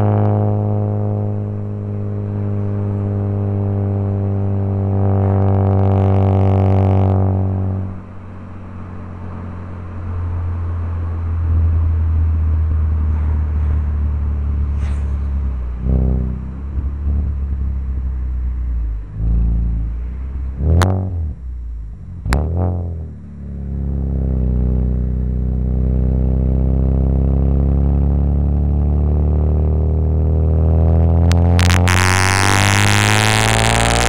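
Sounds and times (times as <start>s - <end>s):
exhaust cracks: 0.0s - 9.0s, 11.4s - 34.0s
car engine revving: 0.0s - 34.0s.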